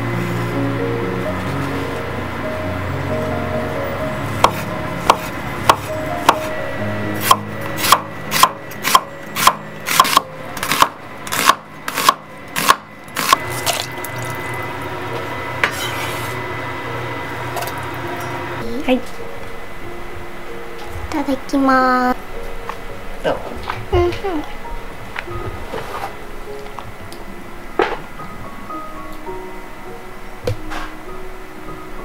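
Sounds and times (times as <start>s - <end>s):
knife chopping on wooden board: 4.4s - 6.5s, 7.2s - 13.8s.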